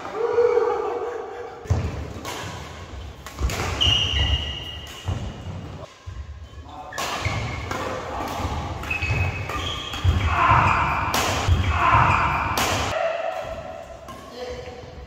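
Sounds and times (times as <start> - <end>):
racket hitting shuttlecock: 1.7 - 5.8, 6.9 - 14.3.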